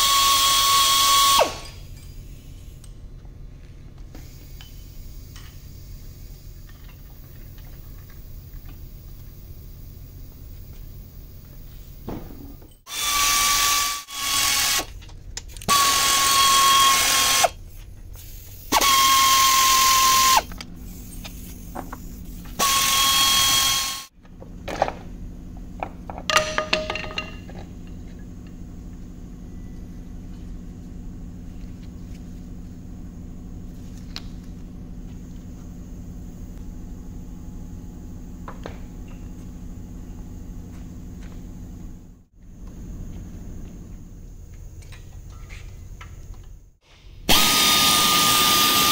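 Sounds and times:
cordless power tool whining: 0:00.0 - 0:01.7, 0:12.9 - 0:14.9, 0:15.7 - 0:17.6, 0:18.7 - 0:20.6, 0:22.6 - 0:24.1, 0:47.3 - 0:48.9
faint steady hum: 0:17.5 - 0:47.3.

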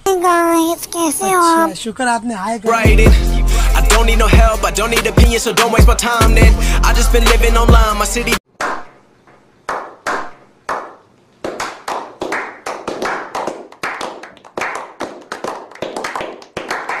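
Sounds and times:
people clapping: 0:09.7 - 0:17.0.

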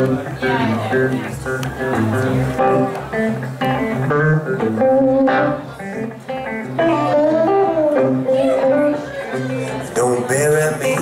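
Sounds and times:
electric guitars playing: 0:00.0 - 0:11.0.

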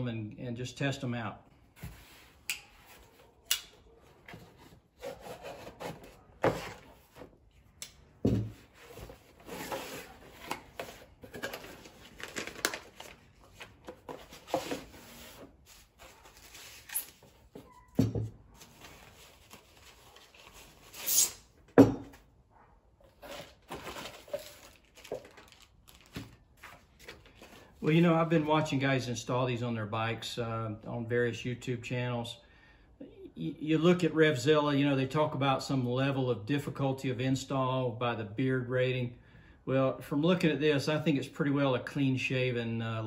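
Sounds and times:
plastic wrapping rustling: 0:08.7 - 0:17.6, 0:18.5 - 0:21.2, 0:23.1 - 0:28.3.

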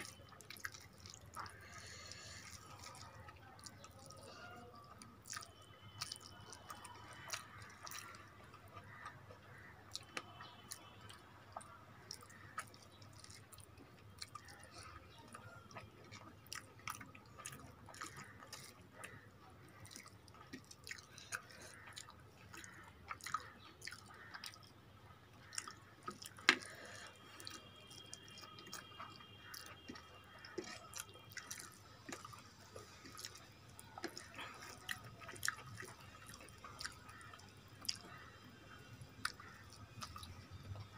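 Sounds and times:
food squishing by hand: 0:00.0 - 0:40.9
wet chewing: 0:00.0 - 0:40.9.

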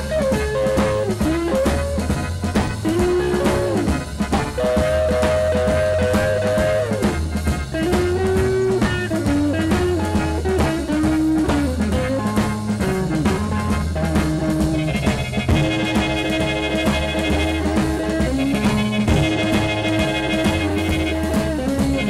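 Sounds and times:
drums: 0:00.0 - 0:22.0
guitar: 0:00.0 - 0:22.0
walking bass: 0:00.0 - 0:22.0
horn playing: 0:00.3 - 0:08.5, 0:14.8 - 0:22.0.

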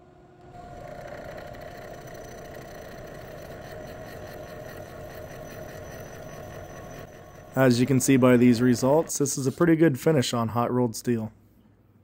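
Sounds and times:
milling machine whir: 0:00.5 - 0:09.6.

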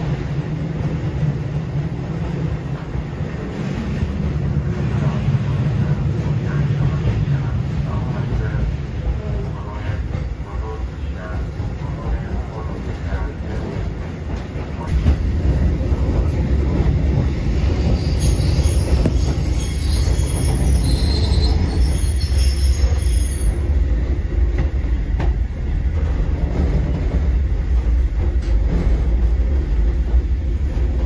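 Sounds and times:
electric train rumbling: 0:00.0 - 0:31.0
high wheel squeal: 0:17.9 - 0:23.8.

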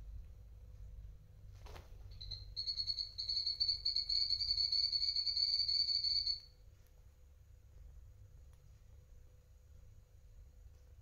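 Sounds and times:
guinea pig chirping: 0:02.1 - 0:06.5.

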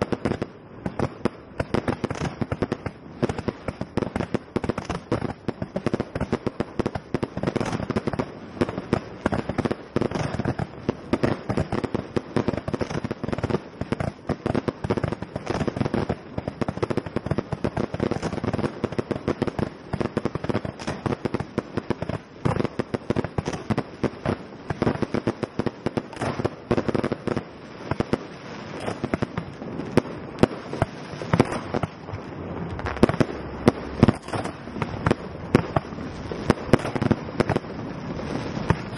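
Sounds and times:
rapid fireworks bangs: 0:00.0 - 0:38.9.

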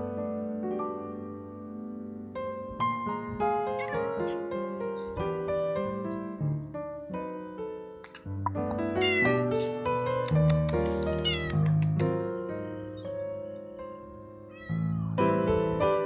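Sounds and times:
piano music: 0:00.0 - 0:16.0
cat meowing: 0:03.6 - 0:05.3, 0:08.9 - 0:09.8, 0:10.9 - 0:12.0, 0:14.4 - 0:15.4.

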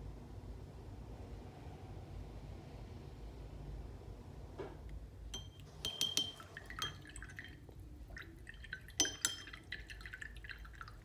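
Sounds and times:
brush clinking against container: 0:05.4 - 0:07.6.

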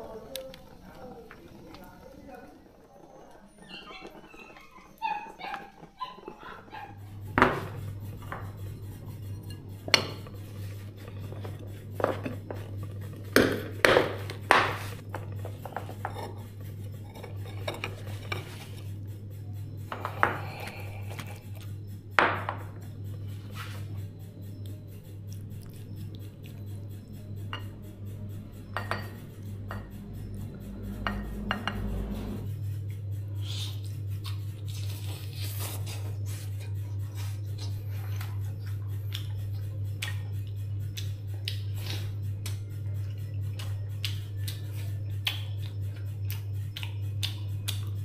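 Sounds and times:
steady low hum: 0:00.0 - 0:48.0
dishes and utensils clinking: 0:03.7 - 0:19.0, 0:19.8 - 0:21.6, 0:26.4 - 0:32.5.

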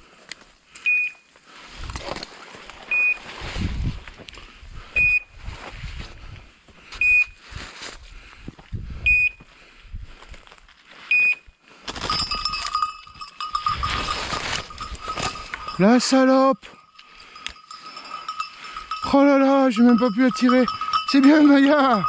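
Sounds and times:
footsteps: 0:10.2 - 0:22.0
dog collar beeping: 0:12.1 - 0:22.0
brush rustling: 0:12.2 - 0:19.0.

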